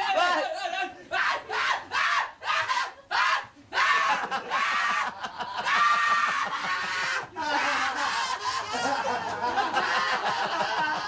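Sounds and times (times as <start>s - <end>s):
men laughing and snickering: 3.6s - 11.0s.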